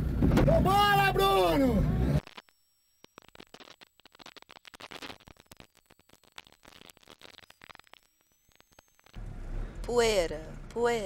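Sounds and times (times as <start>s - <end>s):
faint irregular crackling: 2.2s - 9.3s.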